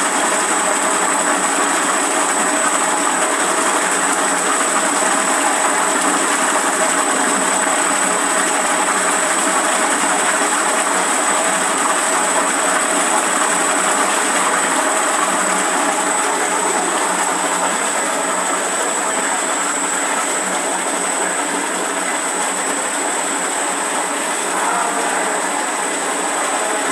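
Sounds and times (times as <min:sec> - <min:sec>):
agitator motor stirring liquid: 0:00.0 - 0:26.9.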